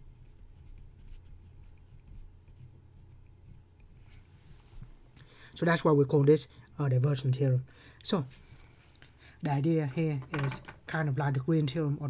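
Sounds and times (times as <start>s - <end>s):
marker scratching on paper: 0.0s - 4.6s
low steady hum: 0.0s - 12.0s.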